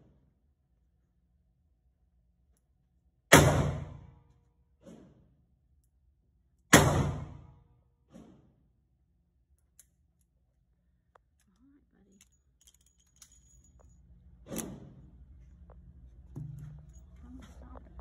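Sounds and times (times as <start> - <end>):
gunshot with echo: 3.3 - 4.1, 6.7 - 7.5
metallic clicks and clinks: 11.2 - 14.7
knock: 16.3 - 16.7.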